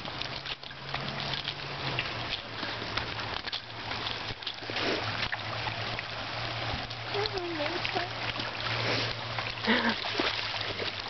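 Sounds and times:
rushing river water: 0.0s - 11.0s.

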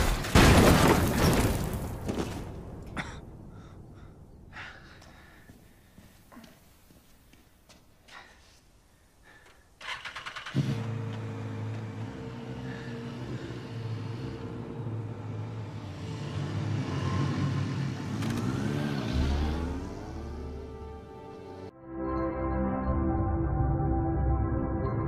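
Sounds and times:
motorcycle engine revving: 9.8s - 21.7s.

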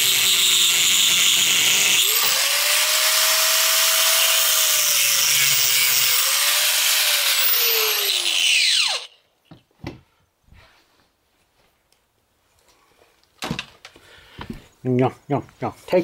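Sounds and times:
angle grinder whining: 0.0s - 9.2s.

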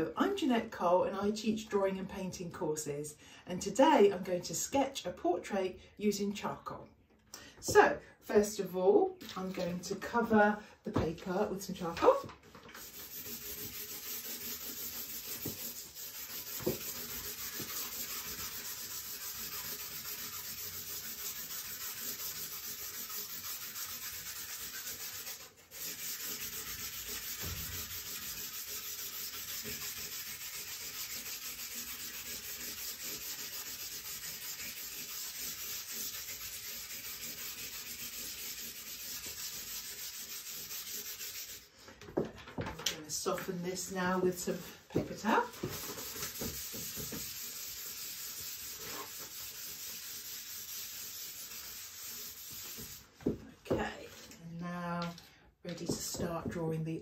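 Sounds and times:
charcoal scratching on paper: 12.0s - 41.8s, 45.2s - 54.2s.

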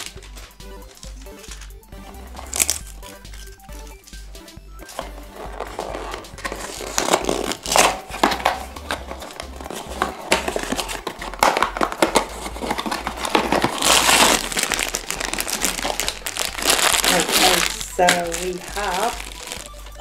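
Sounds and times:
plastic bag crinkling: 0.0s - 4.1s, 4.8s - 20.0s
cardboard box being opened: 4.8s - 20.0s.

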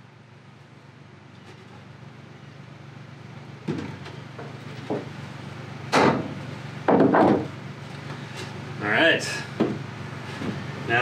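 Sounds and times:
wooden boxes knocking on workbench: 3.7s - 5.1s, 6.0s - 7.6s, 9.6s - 9.8s.

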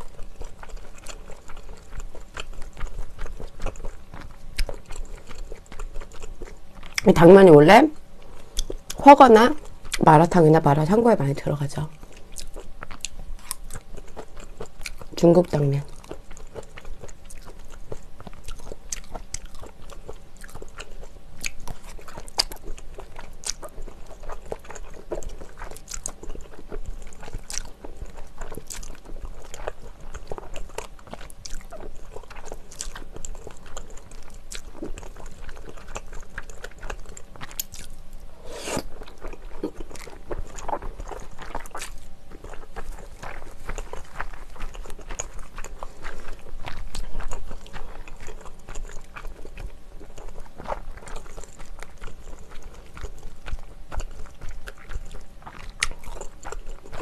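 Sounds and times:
person slurping noodles: 38.4s - 38.9s.

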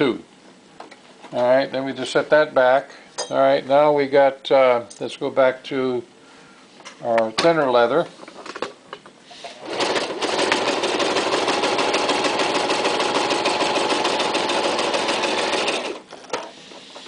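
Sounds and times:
sewing machine stitching: 9.6s - 16.6s.

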